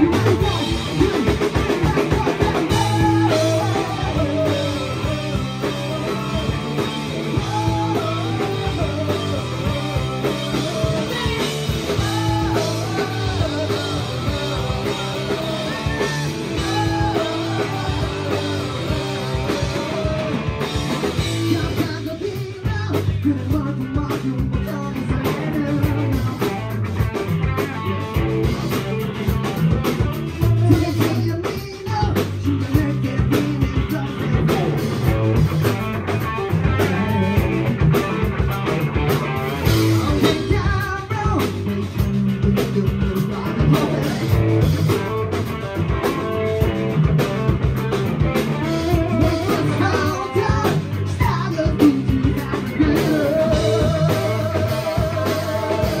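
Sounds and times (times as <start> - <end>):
person singing into microphone: 0.0 - 26.4, 40.0 - 44.4, 48.6 - 56.0
bass guitar: 0.0 - 56.0
drum kit: 0.0 - 56.0
electric guitar: 0.0 - 56.0.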